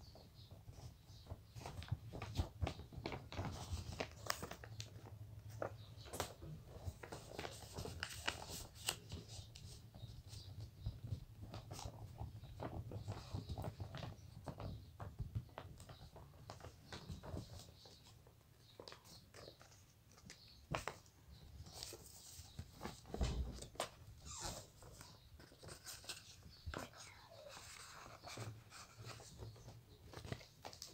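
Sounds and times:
paper rustling and crinkling: 1.2s - 30.9s.

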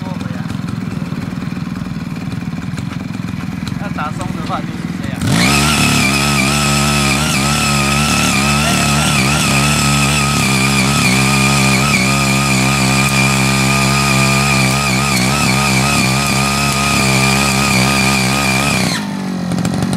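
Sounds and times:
tiller engine running under load: 0.0s - 19.9s
tilling blades churning soil: 0.0s - 19.9s
high whine: 3.7s - 19.2s.

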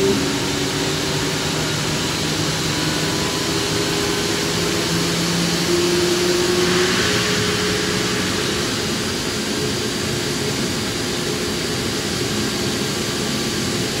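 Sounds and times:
jet engine running with steady whine: 0.0s - 14.0s.

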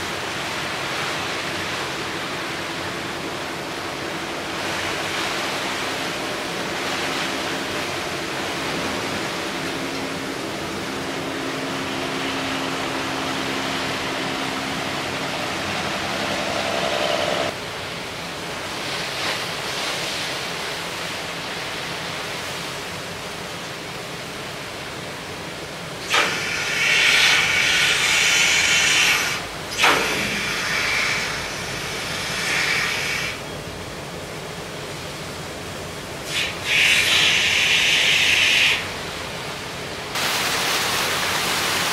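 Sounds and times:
steady rushing noise: 0.0s - 26.2s
ship engine hum: 0.0s - 41.9s.

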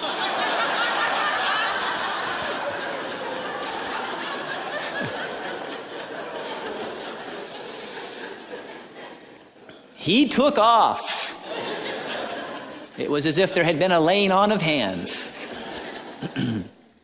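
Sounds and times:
audience laughing: 0.0s - 9.7s, 10.6s - 16.9s.

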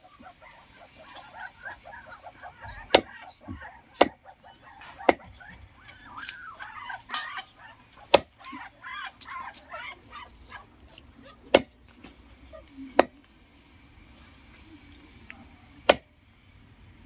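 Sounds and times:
faint birds calling: 0.0s - 11.6s
knife chopping meat and bone: 2.6s - 6.4s, 8.0s - 8.5s, 11.5s - 11.8s, 13.0s - 13.2s, 15.8s - 16.1s.

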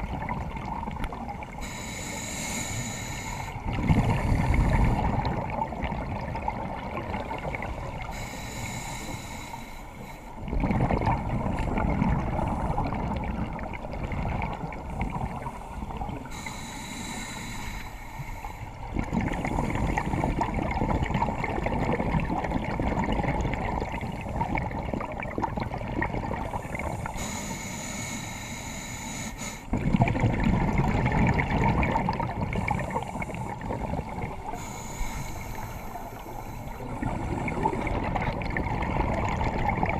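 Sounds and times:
exhaled air bubbling: 0.0s - 39.9s
regulator hiss: 1.6s - 3.6s, 8.0s - 10.3s, 15.4s - 18.8s, 26.5s - 29.7s, 34.4s - 37.9s.

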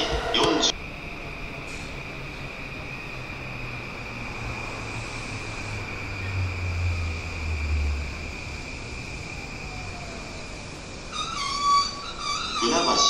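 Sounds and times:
faint falling whine: 0.0s - 13.0s
steady high-pitched tone: 0.0s - 13.0s
train rumble: 0.0s - 13.0s.

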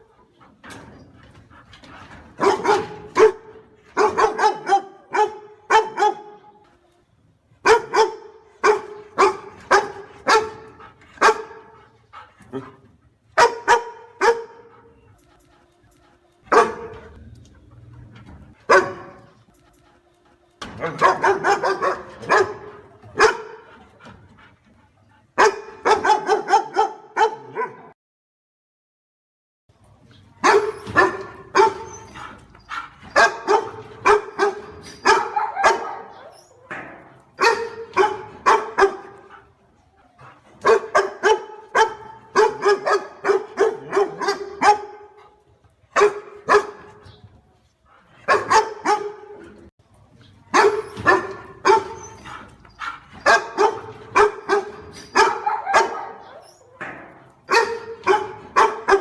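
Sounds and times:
dog barking: 2.4s - 6.5s, 7.6s - 11.8s, 13.4s - 14.8s, 16.5s - 17.2s, 18.7s - 19.3s, 20.8s - 23.7s, 25.4s - 28.0s, 30.4s - 31.9s, 32.7s - 36.3s, 37.4s - 39.4s, 40.6s - 45.2s, 46.0s - 47.0s, 48.2s - 49.5s, 50.5s - 56.4s, 57.5s - 59.0s.

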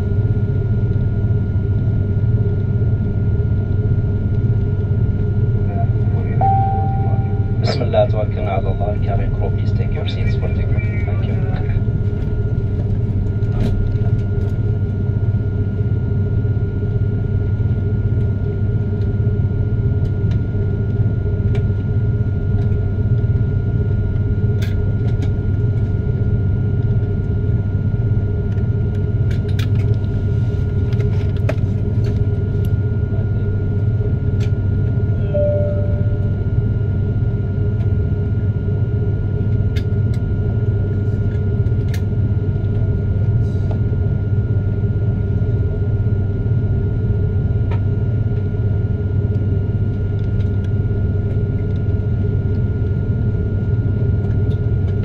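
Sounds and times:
jet engines rumbling in cabin: 0.0s - 55.0s
high-pitched whine: 5.6s - 12.5s, 35.0s - 37.4s.

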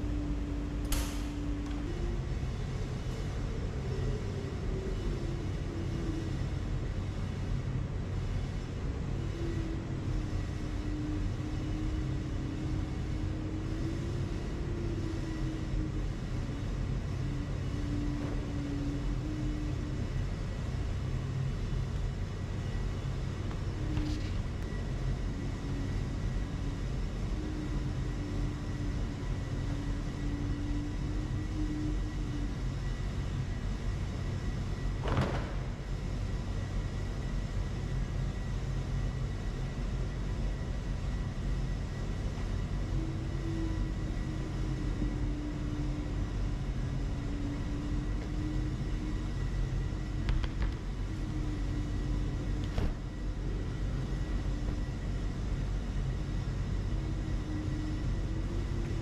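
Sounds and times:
tumble dryers rumbling and humming: 0.0s - 59.0s
dryer door latch clicking: 0.9s - 1.8s.

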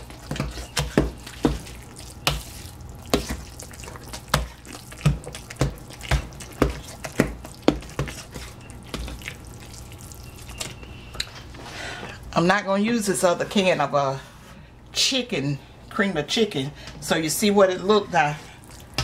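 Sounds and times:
wet squishing: 0.0s - 11.3s, 18.3s - 19.0s.

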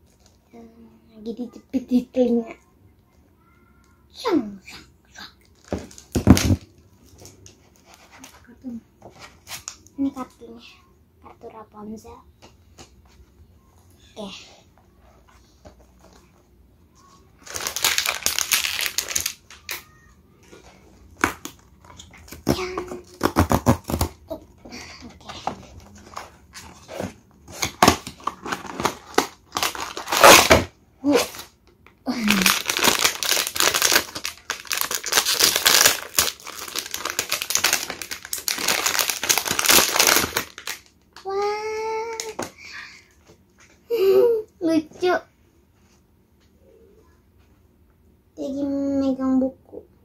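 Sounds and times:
foil bag crinkling: 5.6s - 8.4s, 17.4s - 20.0s, 27.6s - 31.5s, 32.1s - 41.3s.

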